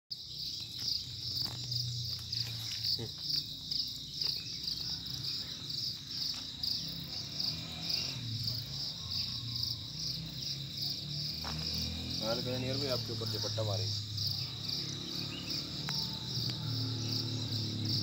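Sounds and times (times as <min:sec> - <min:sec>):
insects buzzing: 0:00.1 - 0:18.0.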